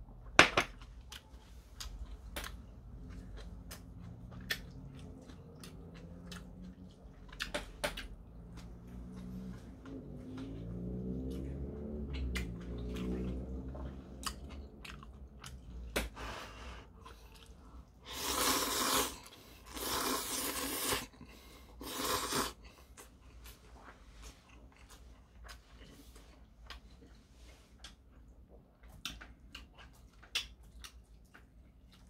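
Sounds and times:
wet chewing: 0.8 - 16.2, 16.9 - 32.0
lip-smacking clicks: 12.0 - 13.0
noodle slurps: 18.0 - 22.6.

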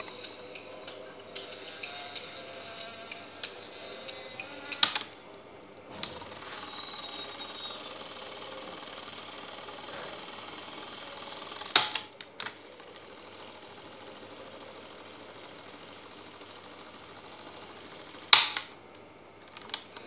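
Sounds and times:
tape mechanism running: 0.0 - 20.0.

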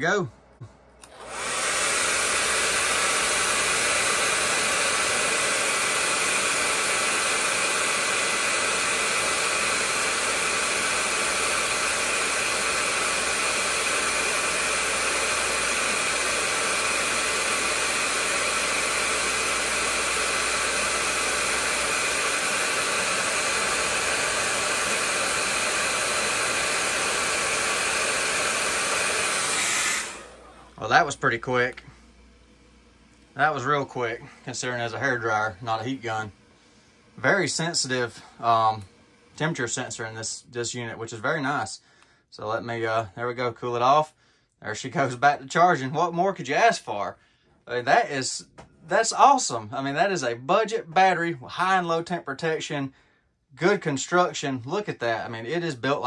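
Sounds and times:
hair dryer running: 0.6 - 40.4.

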